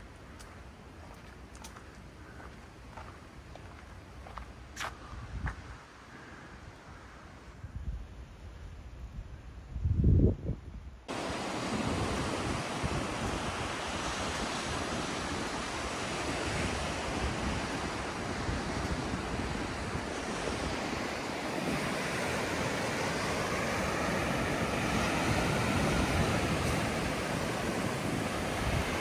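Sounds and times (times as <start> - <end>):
wind on microphone: 4.8 - 5.8, 7.5 - 29.0
ocean surf washing onto beach: 11.1 - 29.0.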